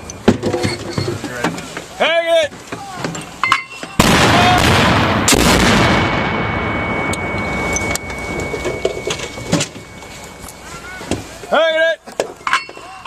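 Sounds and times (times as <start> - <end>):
mortar firing blast: 4.0 - 7.1
sharp bang: 4.0 - 10.0
rumble: 4.0 - 10.6.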